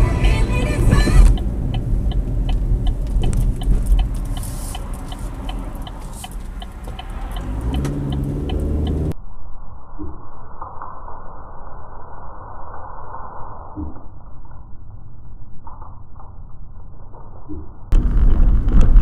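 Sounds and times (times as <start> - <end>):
car engine rumble: 0.0 - 9.2, 17.9 - 19.0
turn signal relay ticking: 0.0 - 9.2.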